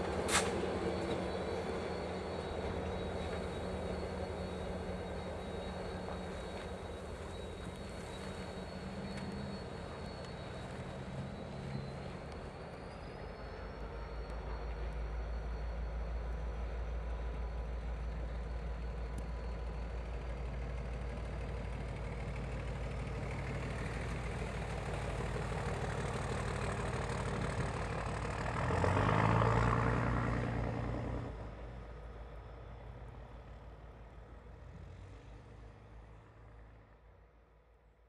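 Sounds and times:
locomotive engine rumble: 0.0 - 37.3.

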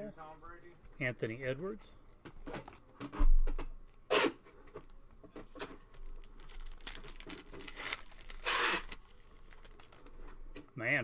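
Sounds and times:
wrapper tearing and crinkling: 4.8 - 10.2.

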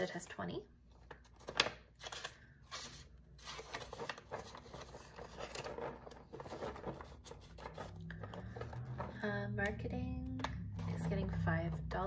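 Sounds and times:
banknotes and plastic rustling: 0.9 - 9.2.

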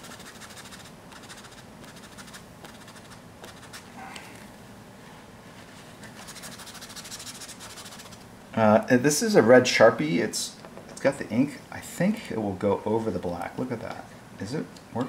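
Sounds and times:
toilet paper rubbing on paper: 0.0 - 3.9, 5.5 - 8.2.

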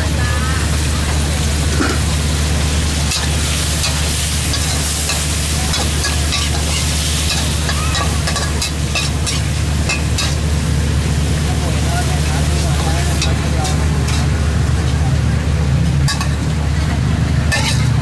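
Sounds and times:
food sizzling in a wok: 0.0 - 18.0
metal spatula scraping a wok: 3.0 - 10.4, 13.1 - 15.0, 16.0 - 16.4, 17.5 - 18.0.

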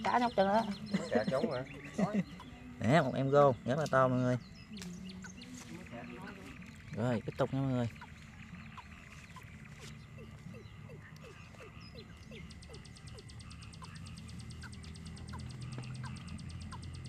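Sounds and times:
frogs chirping: 0.0 - 17.0
steady high hum: 0.0 - 17.0
fast high ticking trill: 11.9 - 17.0.

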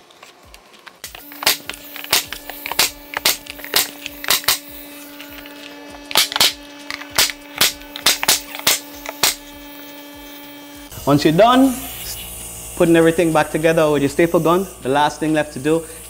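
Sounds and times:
steady hum: 0.1 - 16.0
staple gun firing: 1.4 - 4.7, 6.1 - 9.4.

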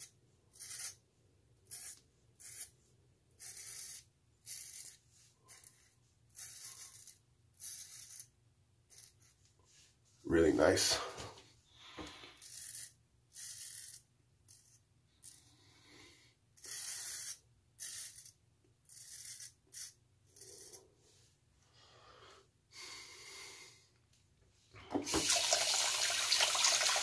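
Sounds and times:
water running into sink: 24.9 - 27.0.

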